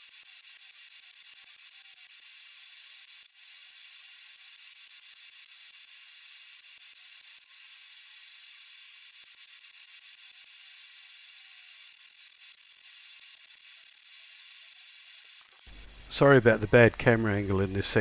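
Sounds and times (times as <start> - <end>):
faint steady hiss: 15.7 - 18.0.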